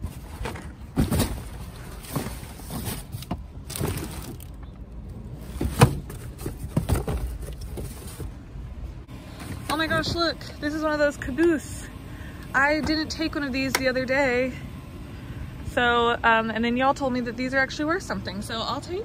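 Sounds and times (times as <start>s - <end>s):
cardboard boxes rustling and knocking: 0.0s - 4.6s, 5.3s - 8.4s.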